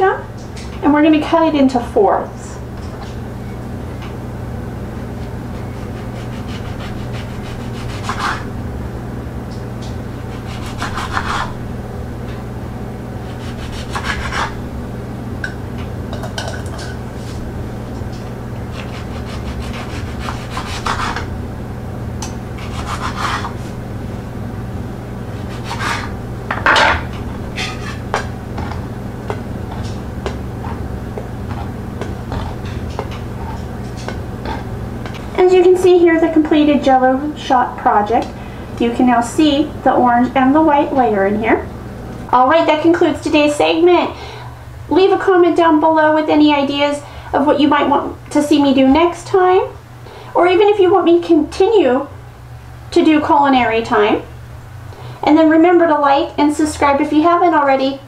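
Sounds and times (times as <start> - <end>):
knife cutting through peel: 5.8 - 8.5, 10.3 - 11.6, 13.3 - 14.6, 18.7 - 21.3, 22.6 - 23.7, 25.3 - 26.2
blade rubbing on wooden board: 18.7 - 21.2, 22.6 - 23.6, 25.4 - 26.2.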